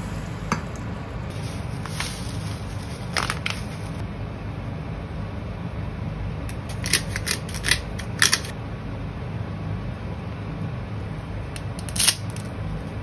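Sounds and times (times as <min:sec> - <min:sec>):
steady low hum: 0:00.0 - 0:13.0
granules shaken from a bag: 0:01.3 - 0:04.0
pepper mill grinding: 0:01.3 - 0:04.0, 0:06.6 - 0:08.5.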